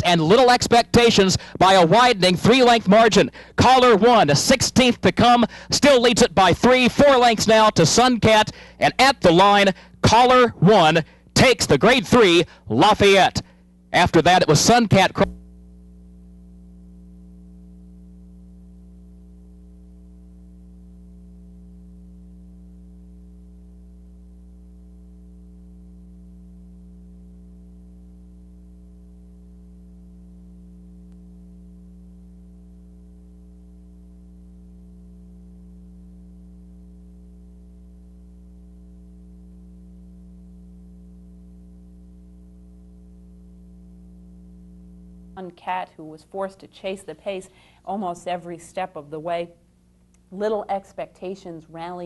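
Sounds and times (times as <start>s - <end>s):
electrical hum: 0.0s - 52.0s.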